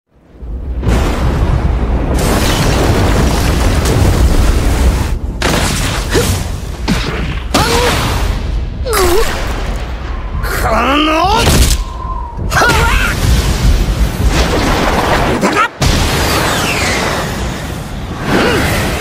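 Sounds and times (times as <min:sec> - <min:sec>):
heavy booming rumble: 0:00.3 - 0:05.6.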